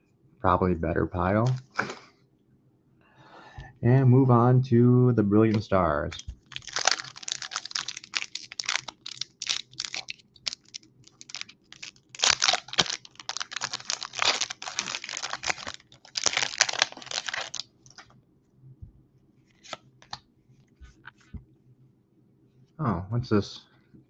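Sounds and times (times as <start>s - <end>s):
foil wrapper crinkling and tearing: 6.1s - 18.1s.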